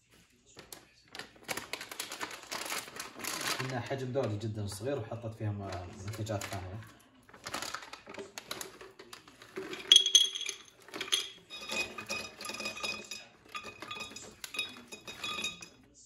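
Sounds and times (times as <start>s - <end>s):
nuts clattering into glass jar: 7.4s - 15.8s.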